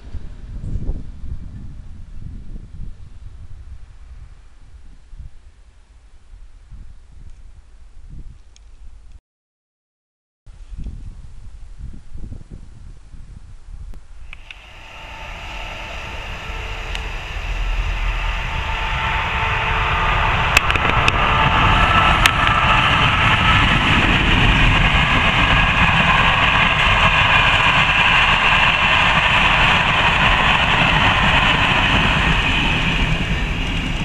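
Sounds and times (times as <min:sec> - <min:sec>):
passenger train passing: 0:14.3 - 0:34.0.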